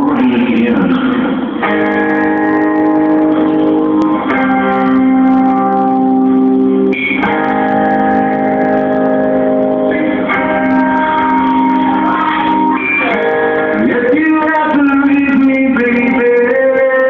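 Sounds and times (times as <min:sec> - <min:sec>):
instrumental held chords: 0:00.0 - 0:17.0.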